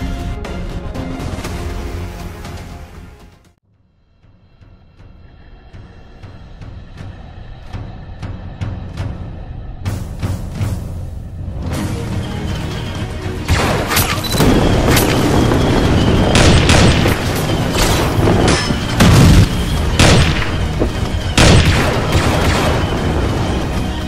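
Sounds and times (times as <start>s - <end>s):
dramatic background music: 0.0s - 24.0s
booming blasts: 13.5s - 24.0s.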